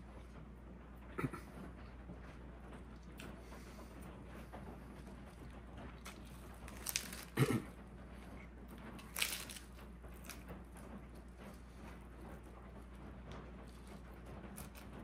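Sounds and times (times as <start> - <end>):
lettuce leaves crunching: 6.0 - 7.7, 9.0 - 10.4.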